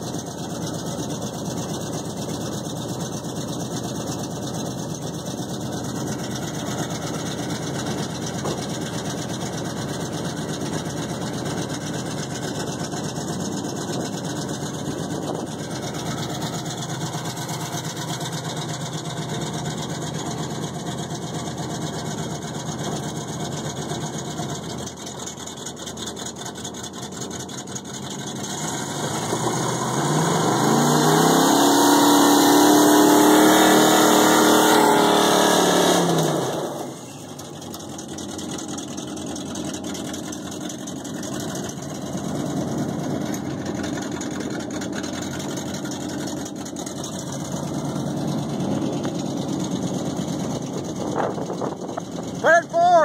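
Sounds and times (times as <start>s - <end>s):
pickup engines idling: 0.0s - 53.0s
engine revving hard: 28.4s - 37.0s.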